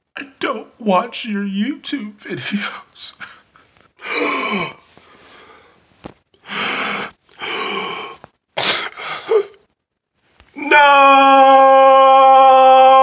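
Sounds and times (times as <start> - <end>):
man gasping and sobbing: 2.4 - 5.8, 6.4 - 9.7.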